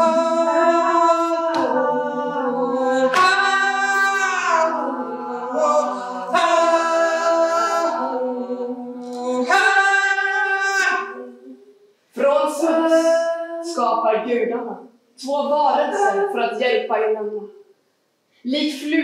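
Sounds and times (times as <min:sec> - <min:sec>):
woman singing a lament: 0:00.0 - 0:11.6.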